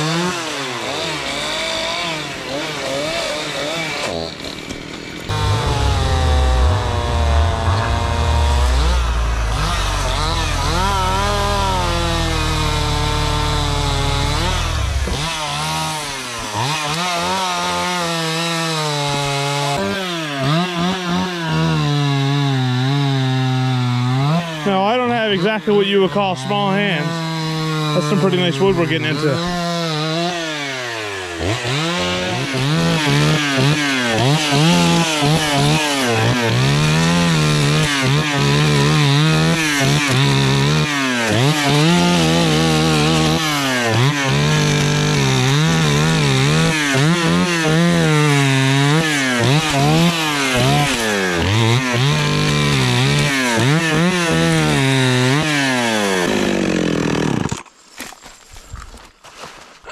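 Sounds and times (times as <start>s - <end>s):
chainsaw revving and idling: 0.0s - 58.1s.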